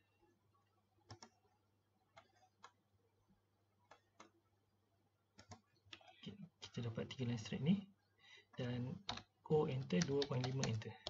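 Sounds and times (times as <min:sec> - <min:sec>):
computer mouse clicks: 0:01.0 - 0:01.5, 0:02.1 - 0:02.8, 0:03.9 - 0:04.4, 0:05.4 - 0:06.2.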